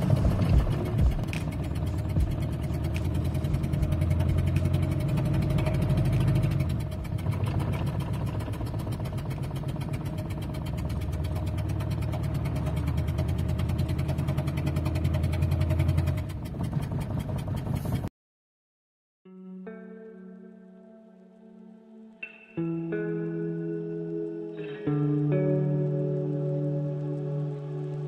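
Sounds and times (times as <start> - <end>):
diesel engine idling roughly: 0.0 - 18.1.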